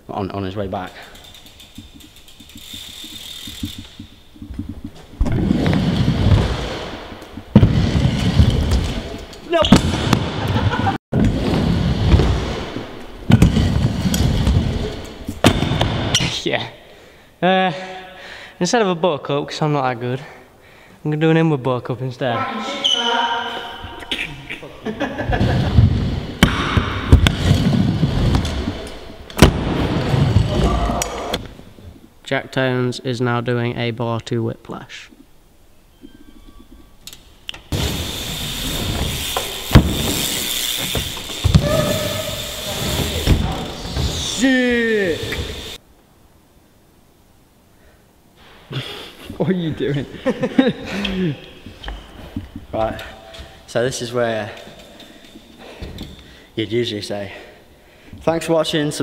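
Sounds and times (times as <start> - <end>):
scooter wheels rolling on ramps: 0.7 - 16.2, 25.2 - 31.6, 37.6 - 45.8
scooter banging on plywood: 39.0 - 40.2.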